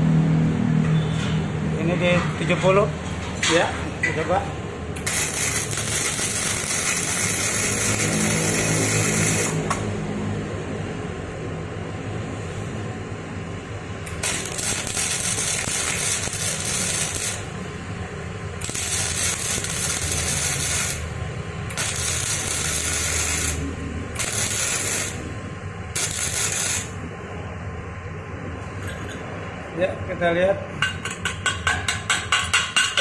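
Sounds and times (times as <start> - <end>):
welding arc crackling and hissing: 5.0 - 9.8, 14.1 - 17.6, 18.6 - 27.0.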